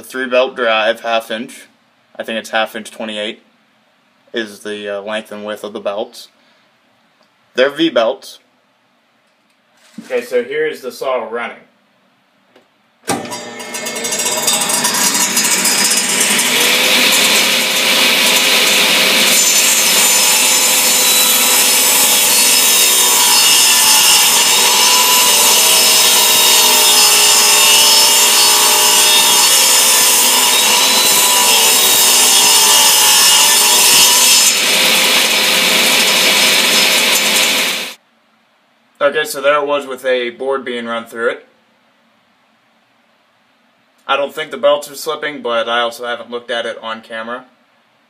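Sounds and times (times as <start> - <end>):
saw blade cutting board: 13.1 - 38.0
table saw motor running: 13.1 - 38.0.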